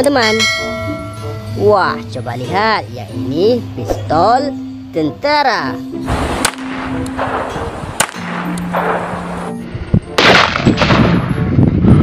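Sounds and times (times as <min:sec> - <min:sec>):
pistol gunshots: 0:06.1 - 0:09.4, 0:10.2 - 0:11.3.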